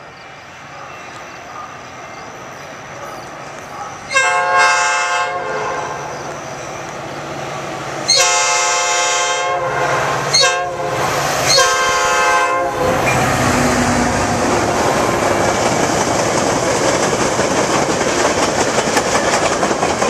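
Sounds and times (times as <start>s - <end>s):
train rumbling past on rails: 0.0s - 20.0s
locomotive horn blasts: 4.1s - 6.0s, 8.1s - 13.9s.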